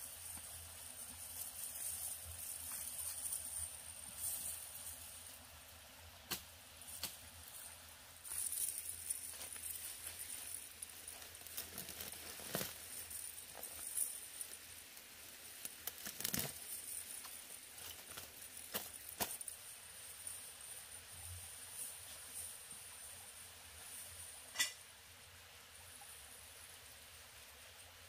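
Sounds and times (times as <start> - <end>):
footsteps through undergrowth: 0.4 - 5.2, 6.8 - 14.5.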